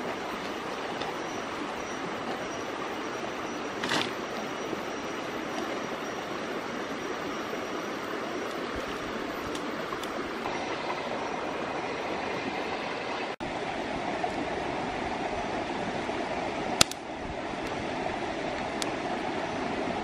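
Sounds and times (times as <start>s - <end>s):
stream flowing over rocks: 0.0s - 20.0s
sticks dropped on stones: 3.8s - 4.2s.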